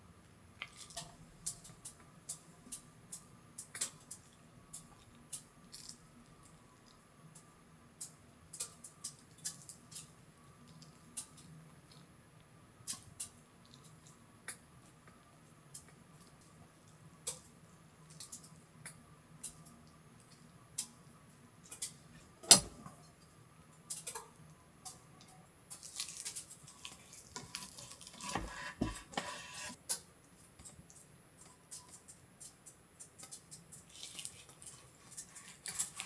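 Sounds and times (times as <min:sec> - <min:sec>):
rustling and scraping: 0:26.8 - 0:29.8.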